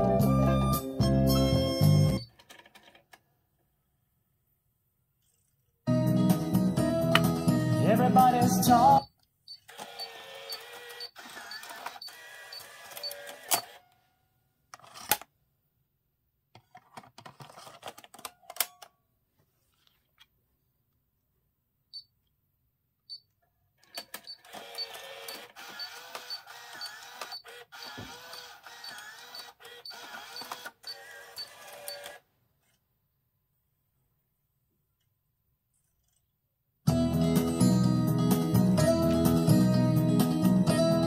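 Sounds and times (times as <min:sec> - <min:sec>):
motor whirring: 0:09.7 - 0:13.8, 0:24.4 - 0:32.2.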